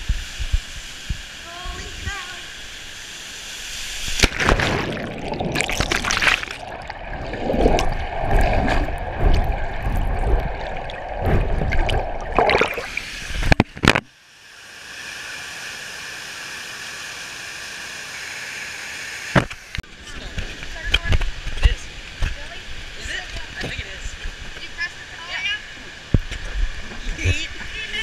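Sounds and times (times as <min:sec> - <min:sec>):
steady hiss: 0:00.0 - 0:04.3
water rushing and sloshing: 0:00.5 - 0:14.0.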